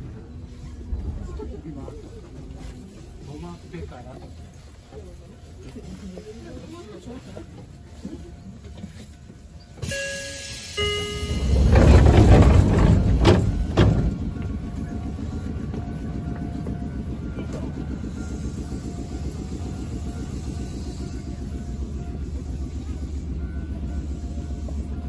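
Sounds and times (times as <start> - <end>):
stopped train humming: 0.0 - 25.0
two-note descending chime: 9.8 - 11.9.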